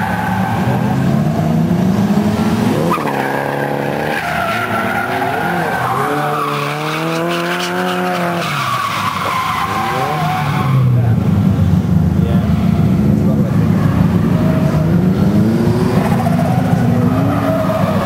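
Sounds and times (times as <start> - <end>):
car engine revving hard: 0.0 - 8.5, 9.6 - 18.0
tyres squealing: 2.8 - 11.0.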